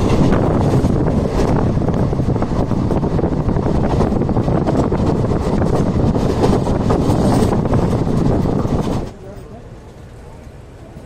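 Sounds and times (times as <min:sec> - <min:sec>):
wind buffeting microphone: 0:00.0 - 0:09.3
train rumble: 0:00.0 - 0:11.0
train running gear clatter: 0:00.0 - 0:11.0.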